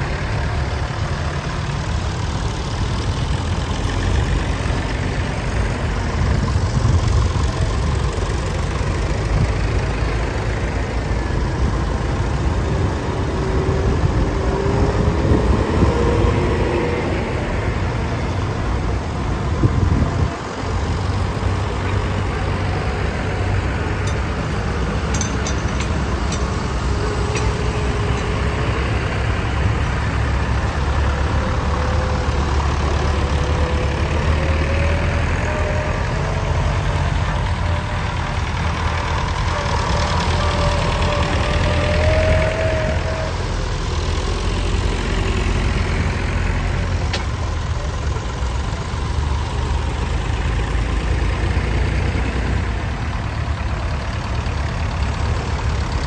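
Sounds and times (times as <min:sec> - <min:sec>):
tractor engines rumbling: 0:00.0 - 0:56.0.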